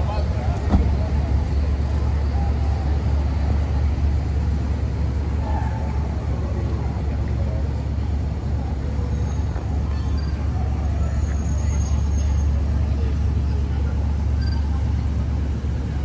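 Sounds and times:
car engine idling: 0.0 - 16.0.

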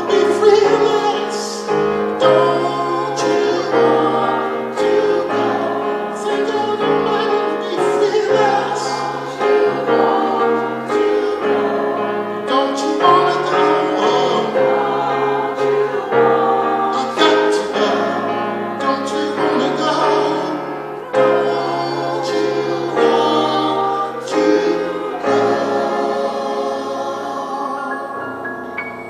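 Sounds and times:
person singing with vibrato: 0.0 - 29.0
piano chords: 0.0 - 29.0.

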